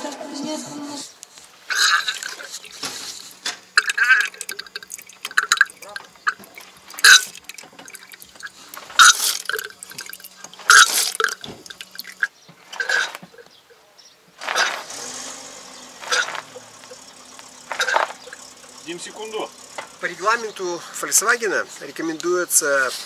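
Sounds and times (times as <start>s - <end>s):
fluid gurgling and sputtering: 1.7s - 13.4s, 14.6s - 21.2s.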